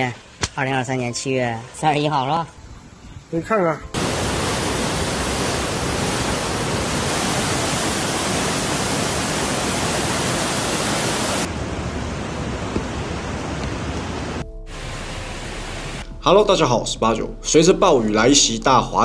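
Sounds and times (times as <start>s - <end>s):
floodwater rushing: 4.0s - 16.0s.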